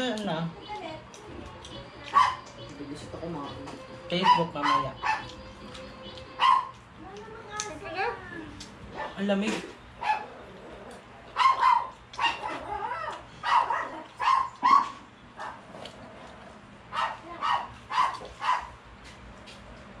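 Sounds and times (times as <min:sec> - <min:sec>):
dog barking: 0:02.1 - 0:02.5, 0:04.2 - 0:05.4, 0:06.3 - 0:06.8, 0:08.9 - 0:09.2, 0:10.0 - 0:10.4, 0:11.3 - 0:15.8, 0:16.9 - 0:18.8.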